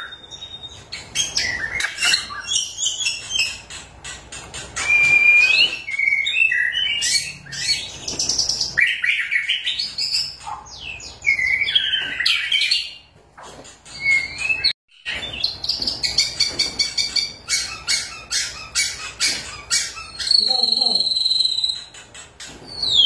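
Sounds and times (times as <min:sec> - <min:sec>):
songbird whistles and trills: 0:00.0 - 0:23.0.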